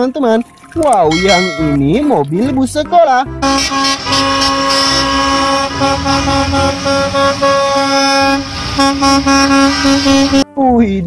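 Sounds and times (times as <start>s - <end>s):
bus engines rumbling: 3.4s - 10.4s
bus horn long tone: 3.4s - 10.4s.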